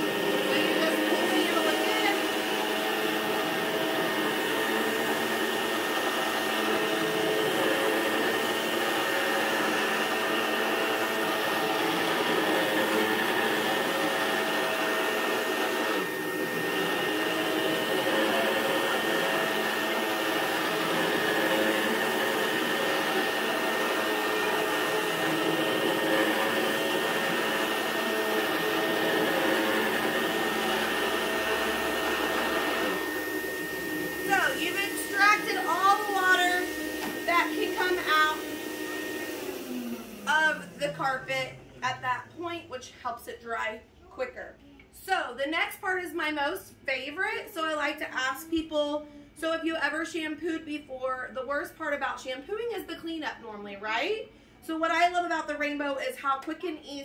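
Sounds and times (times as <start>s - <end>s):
carpet shampooer sucking water: 0.0s - 42.6s
vacuum cleaner running: 0.0s - 43.7s.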